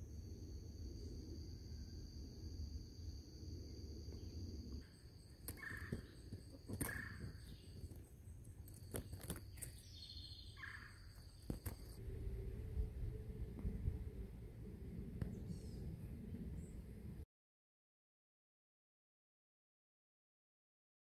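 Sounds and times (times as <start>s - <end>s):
high-pitched insect drone: 0.0s - 14.6s.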